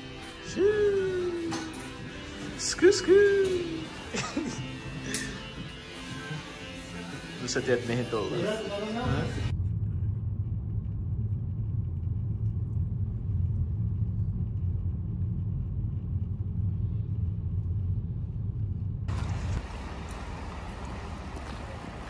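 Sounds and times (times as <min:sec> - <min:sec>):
car engine and tyres rumbling: 0:09.5 - 0:22.0.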